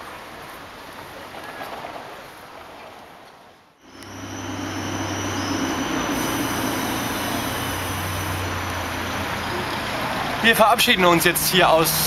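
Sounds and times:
heavy vehicle engine hum: 0:03.8 - 0:12.0
thin high squeal: 0:03.9 - 0:09.3.

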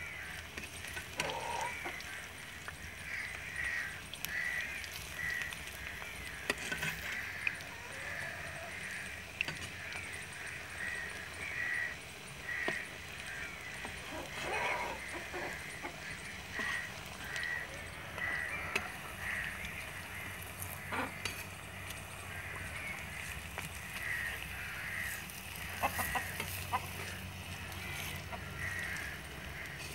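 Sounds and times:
birds calling: 0:00.0 - 0:29.9
hot oil sizzling: 0:00.0 - 0:29.9.

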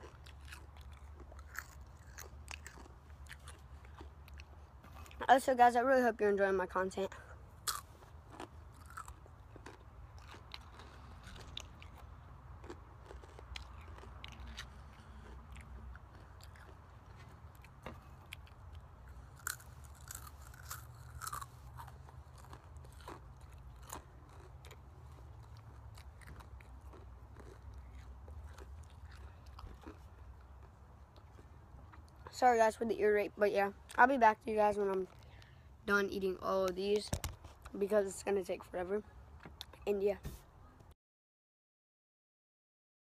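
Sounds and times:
chips crunching: 0:00.0 - 0:05.3, 0:07.6 - 0:32.2.

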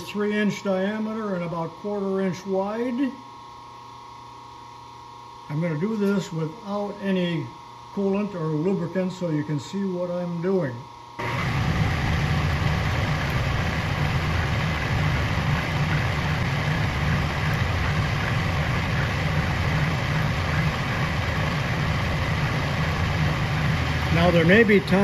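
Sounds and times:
milling machine cutting metal: 0:11.2 - 0:25.0
spindle drive low rumble: 0:11.2 - 0:25.0.

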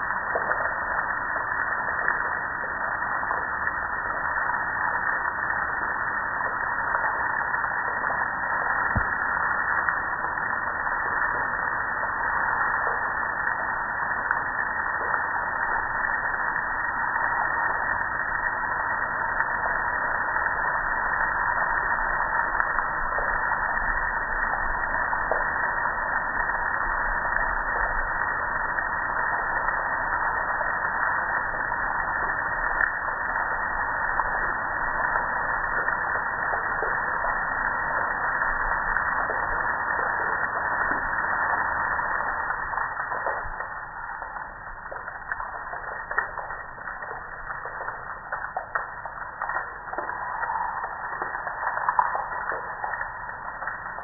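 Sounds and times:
water spraying and splashing: 0:00.0 - 0:54.0.

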